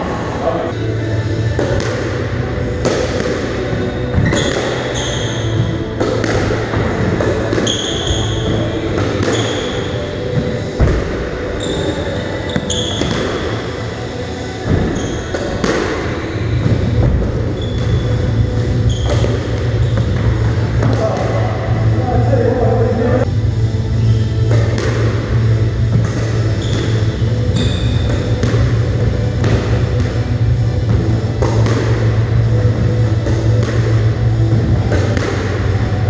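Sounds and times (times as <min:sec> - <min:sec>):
steady low hum: 0:00.0 - 0:36.0
squash ball smacks: 0:01.6 - 0:02.2, 0:02.8 - 0:04.9, 0:05.9 - 0:09.8, 0:14.7 - 0:17.2, 0:24.5 - 0:25.3, 0:25.9 - 0:28.8, 0:30.8 - 0:32.2, 0:33.2 - 0:34.0, 0:34.8 - 0:35.7
shoes squeaking on wooden floor: 0:11.6 - 0:13.1, 0:18.8 - 0:20.4.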